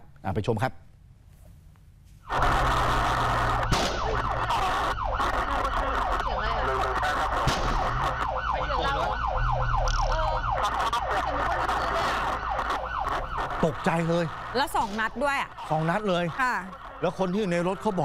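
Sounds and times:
siren wailing and yelping: 2.3s - 18.0s
gunshot cracks: 3.7s - 4.2s, 7.4s - 7.9s.

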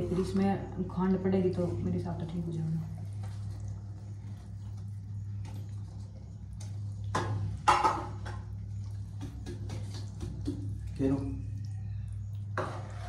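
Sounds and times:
steady low hum: 0.0s - 13.0s
spoon scraping steel bowl: 12.4s - 13.0s.

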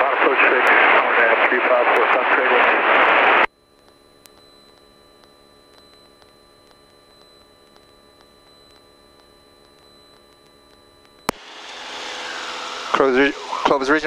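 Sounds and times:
soft ticks: 3.7s - 11.4s.

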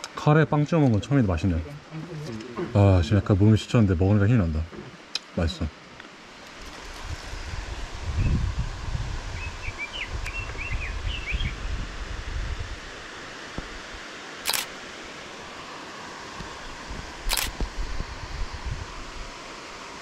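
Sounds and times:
outdoor hiss: 0.0s - 20.0s
faint bird chirps: 9.3s - 11.6s
camera shutter firing: 14.4s - 14.8s, 17.3s - 17.7s.

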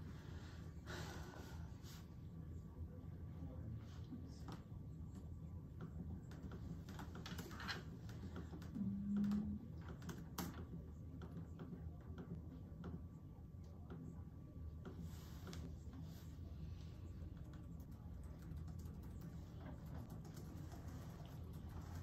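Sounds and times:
laptop keyboard typing: 5.8s - 13.0s, 17.2s - 22.0s
short low hum: 8.7s - 9.8s.

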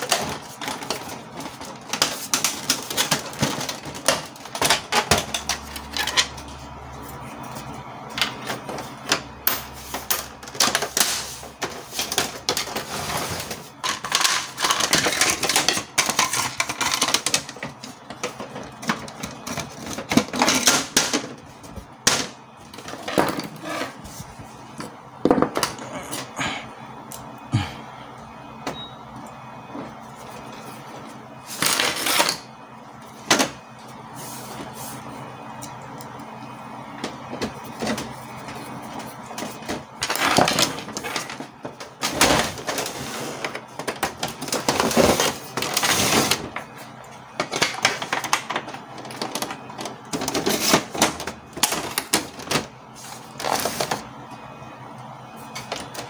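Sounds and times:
plastic parts clicking and rattling: 0.0s - 6.4s, 9.9s - 23.9s, 37.0s - 46.7s, 47.4s - 52.7s.

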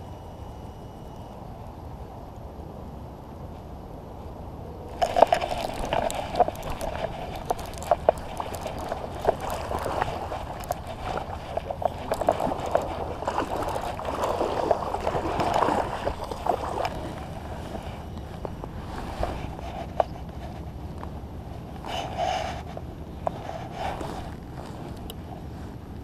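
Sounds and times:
fishing reel clicking: 4.9s - 14.6s
rustling hash: 4.9s - 20.7s
fish splashing: 4.9s - 20.8s.

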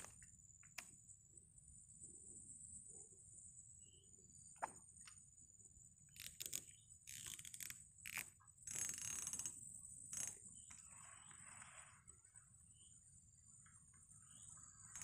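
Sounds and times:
fishing reel clicking and whirring: 6.2s - 10.4s.

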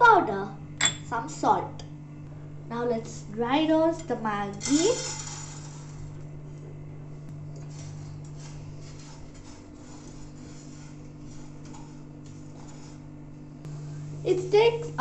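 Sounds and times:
steady low hum: 0.0s - 15.0s
spatula scratching noodles in pan: 7.7s - 13.1s.

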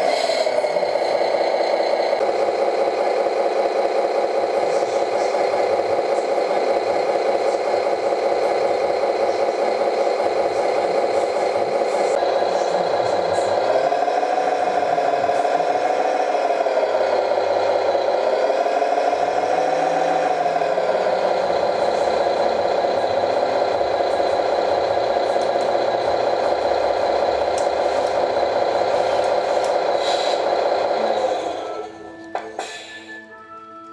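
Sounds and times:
toy engine sound with rattle: 0.0s - 31.8s.

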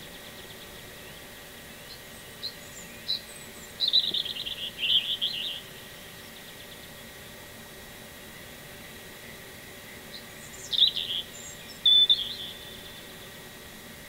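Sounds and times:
small songbird singing: 0.0s - 6.9s, 9.9s - 13.3s.

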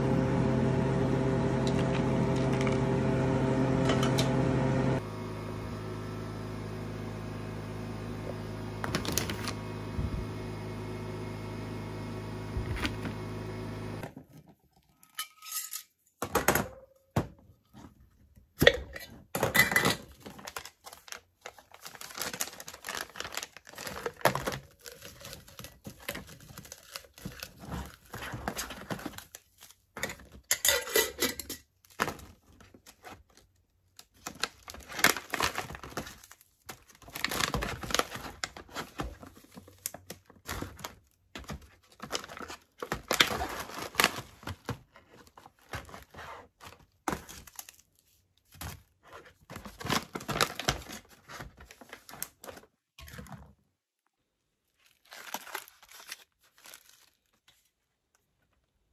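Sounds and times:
plastic bag and packets crinkling: 19.4s - 53.6s, 54.4s - 58.7s.

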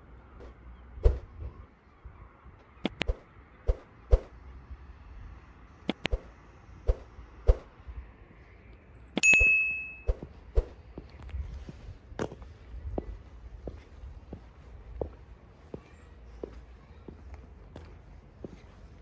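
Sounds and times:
sharp double clicks: 2.8s - 3.8s, 5.9s - 6.3s
bright bell ding: 9.2s - 10.1s
footsteps on hard ground: 10.2s - 19.0s.

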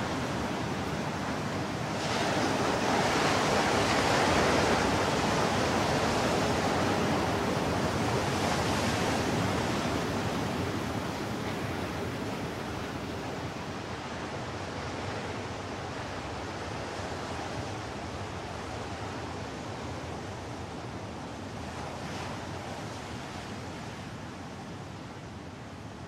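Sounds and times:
steady rushing noise: 0.0s - 13.9s.

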